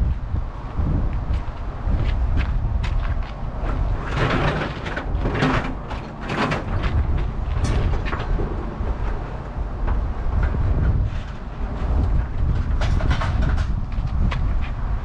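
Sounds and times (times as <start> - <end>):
low rumble: 0.0 - 5.7
scrap metal clattering and scraping: 3.0 - 14.8.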